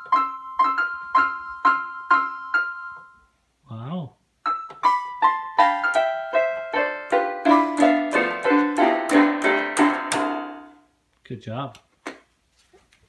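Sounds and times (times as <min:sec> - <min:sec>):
electronic keyboard playing: 0:00.0 - 0:03.3, 0:04.5 - 0:10.8.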